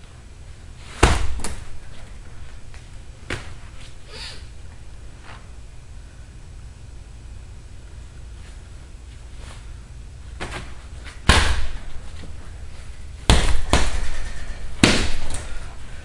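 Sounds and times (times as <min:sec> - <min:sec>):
punching bag hits: 0:00.9 - 0:01.7, 0:10.4 - 0:11.9, 0:13.2 - 0:15.5.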